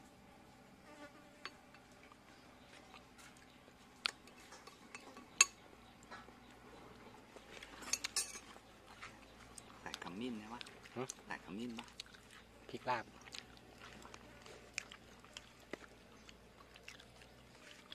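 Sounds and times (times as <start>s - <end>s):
cutlery clinking against dishes: 4.4s - 5.6s, 7.8s - 8.5s.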